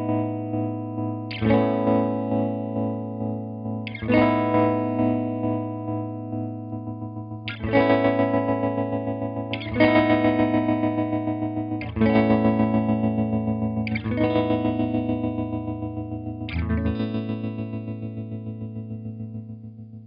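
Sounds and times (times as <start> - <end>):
electric guitar chords with tremolo: 0.0 - 20.0.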